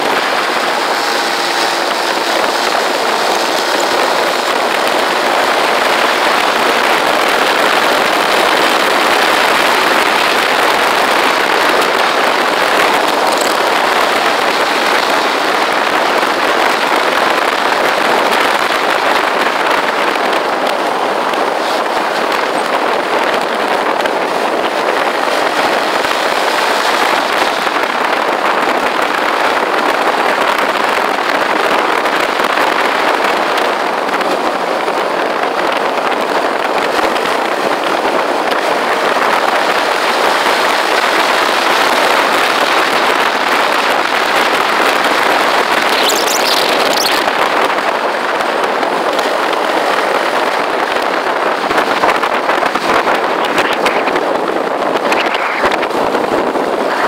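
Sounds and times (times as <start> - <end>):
road noise: 0.0 - 57.0
wind buffeting microphone: 0.0 - 57.0.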